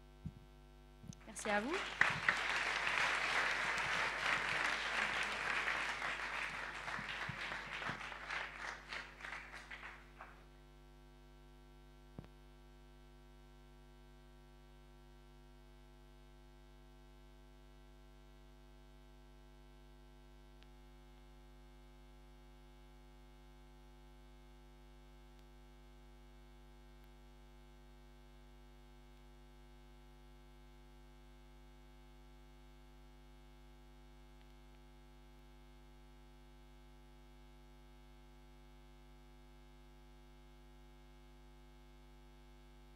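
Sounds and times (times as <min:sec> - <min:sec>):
electrical mains hum: 0:01.0 - 0:10.6
audience applause: 0:01.2 - 0:10.4.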